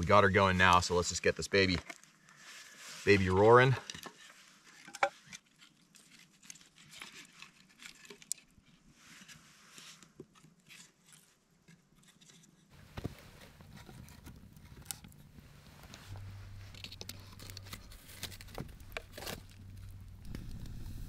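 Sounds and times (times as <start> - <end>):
small fire crackling: 12.7 - 21.0
fire pops and snaps: 12.8 - 21.0
low background rumble: 12.8 - 21.0.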